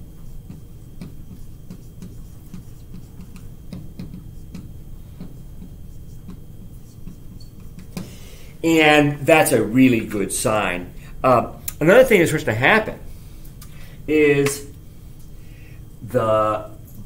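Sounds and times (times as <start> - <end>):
marker writing on a whiteboard: 0.0 - 8.2
low steady hum: 0.0 - 17.0.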